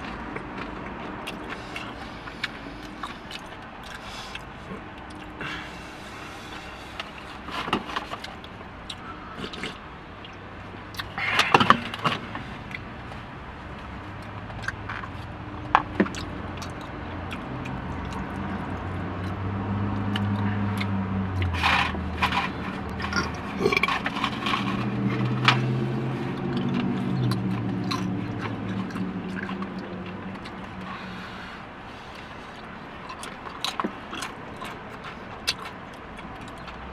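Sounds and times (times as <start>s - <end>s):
chewing: 0.0s - 36.9s
utensil scraping bowl: 21.4s - 26.4s.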